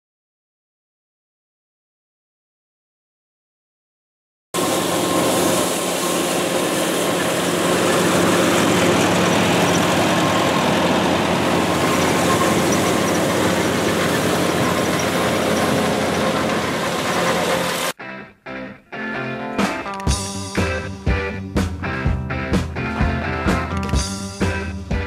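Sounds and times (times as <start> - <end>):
steady rushing noise: 4.6 - 18.0
tractor engine running: 4.6 - 18.0.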